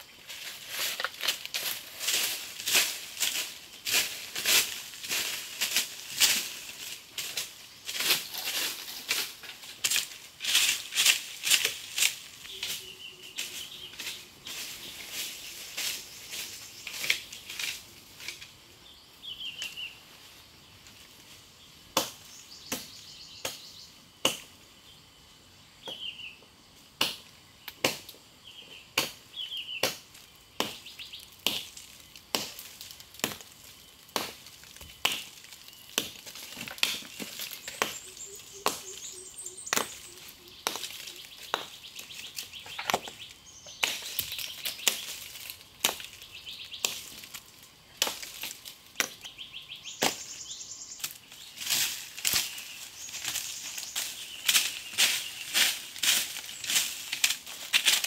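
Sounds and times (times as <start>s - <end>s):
machete clearing crunching brush: 0.2s - 18.5s, 29.8s - 49.2s, 49.9s - 58.0s
bird chirps: 12.4s - 17.5s, 37.0s - 45.2s, 46.1s - 46.9s, 49.2s - 51.6s, 52.4s - 55.6s.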